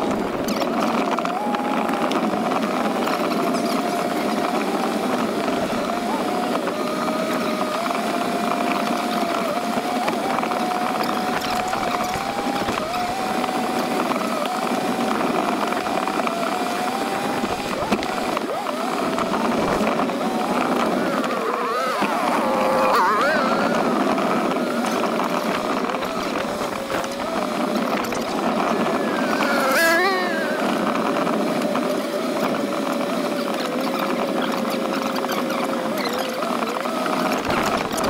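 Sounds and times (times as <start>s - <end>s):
dirt bike engine revving: 0.0s - 38.0s
steady rushing noise: 0.0s - 38.0s.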